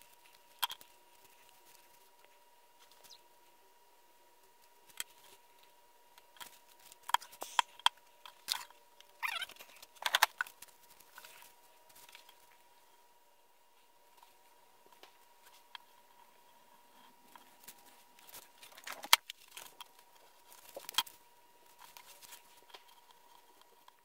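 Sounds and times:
paper rustling: 17.4s - 23.5s.

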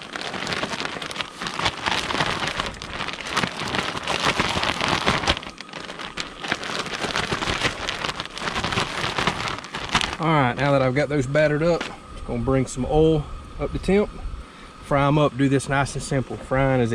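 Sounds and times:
plastic bag crinkling and rustling: 0.0s - 10.8s.

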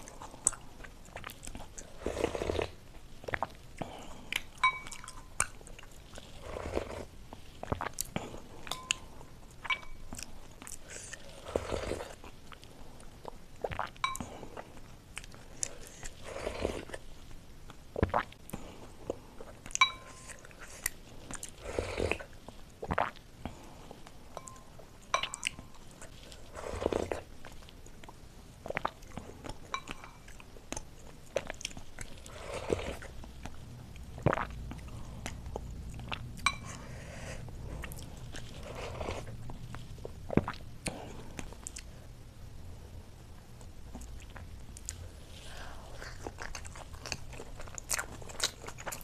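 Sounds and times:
wet chewing and smacking: 0.0s - 42.0s, 43.5s - 49.0s
spoon clinking against glass bowl: 4.6s - 5.4s, 8.7s - 10.1s, 14.0s - 14.3s, 19.8s - 20.3s, 24.4s - 25.8s, 29.7s - 30.2s, 36.4s - 36.8s.

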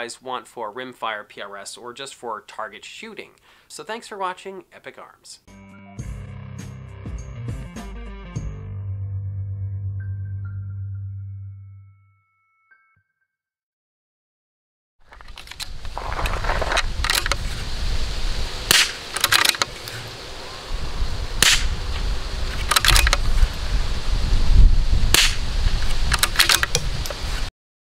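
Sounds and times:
rifle bolt clacking: 17.0s - 17.4s, 18.7s - 19.7s, 22.6s - 23.2s, 26.1s - 26.9s
rifle shots: 18.7s - 19.6s, 21.4s - 21.7s, 25.1s - 25.4s.

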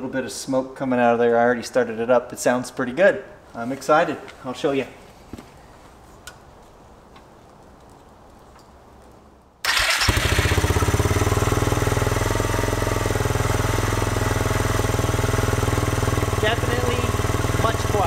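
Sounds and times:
snowmobile engine starting and idling: 9.6s - 18.0s.

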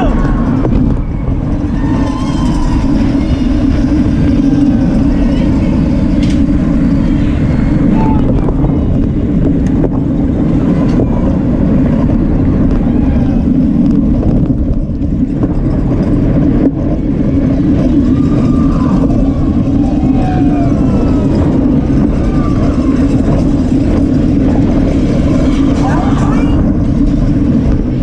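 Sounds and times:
wind rumble on microphone: 0.0s - 28.0s.

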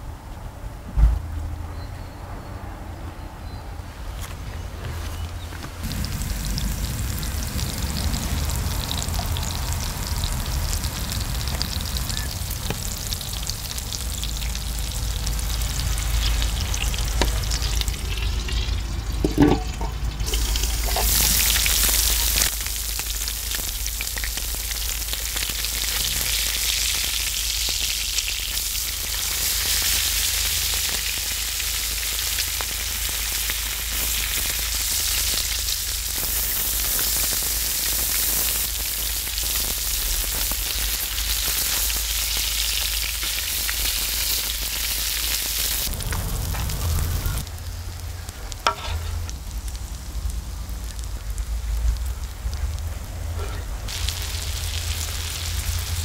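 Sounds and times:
patties sizzling on a griddle: 5.6s - 56.0s
low rumble: 5.8s - 20.7s, 45.7s - 56.0s
metal lid knock: 19.2s - 20.0s
spatula scraping: 48.7s - 49.2s.

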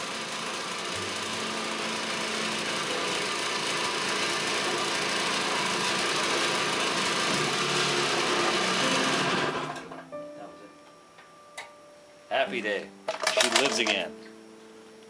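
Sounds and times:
scooter engine running: 0.0s - 9.9s.

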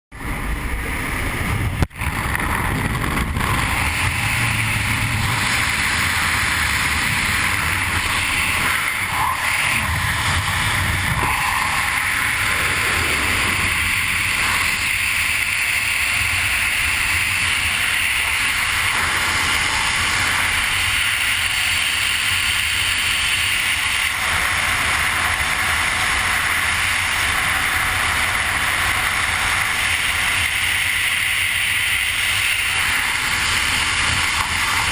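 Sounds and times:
wind rushing over microphone: 0.2s - 22.5s.

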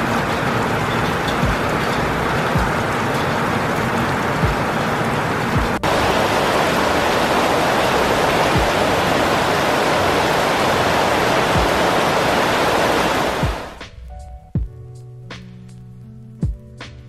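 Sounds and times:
heavy rain on trees: 0.0s - 13.8s
low thumps: 1.1s - 3.0s, 4.4s - 4.8s, 5.6s - 14.9s.

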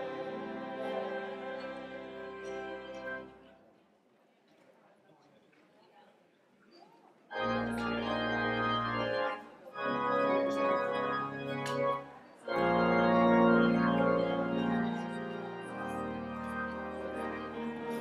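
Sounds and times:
church organ chords: 0.0s - 3.4s, 7.3s - 18.0s
murmur of congregation: 0.0s - 18.0s.

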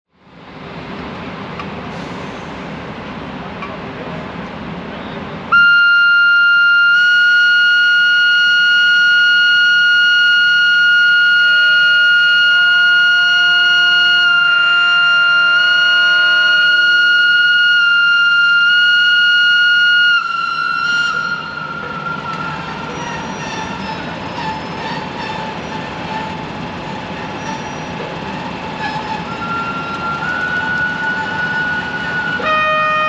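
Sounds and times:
low rumble of passing locomotives: 0.1s - 33.0s
lower horn notes: 5.5s - 22.5s
locomotive horn high note: 5.5s - 24.9s, 28.3s - 33.0s.

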